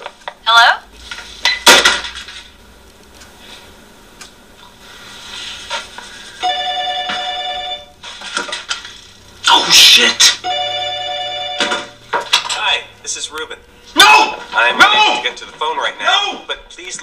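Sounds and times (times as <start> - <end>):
telephone ringing: 6.4 - 8.0, 9.5 - 12.9.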